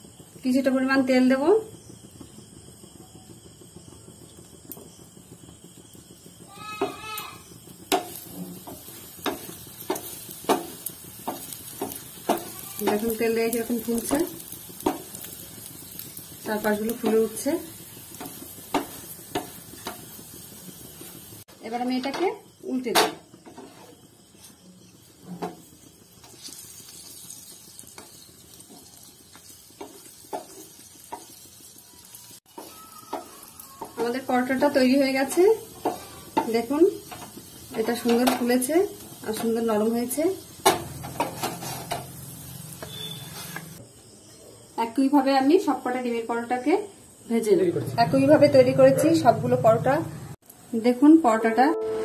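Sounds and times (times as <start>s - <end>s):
flatbread sizzling in oil: 0.0s - 49.3s
frying hiss: 0.0s - 52.0s
spatula tapping on pan: 7.9s - 13.2s, 13.9s - 15.3s, 18.1s - 20.1s, 28.7s - 31.4s, 32.5s - 34.2s, 35.3s - 37.4s.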